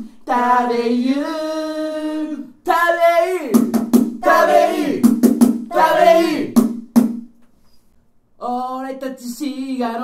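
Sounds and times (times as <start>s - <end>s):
sharp handclaps: 3.6s - 5.7s, 6.4s - 7.2s.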